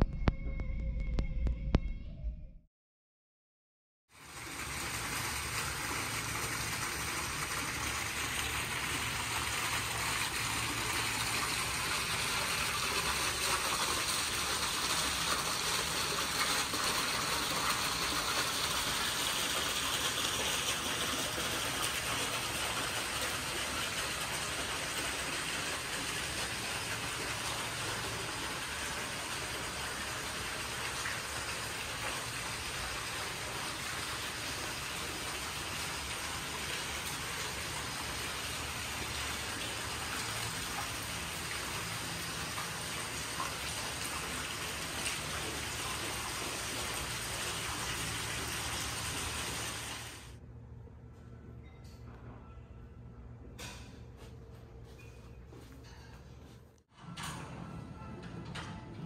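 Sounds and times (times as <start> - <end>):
water rushing: 4.2 - 50.4.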